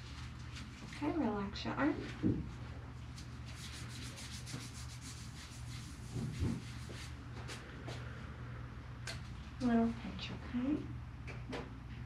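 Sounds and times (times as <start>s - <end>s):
soft scratchy rubbing: 3.1s - 7.6s.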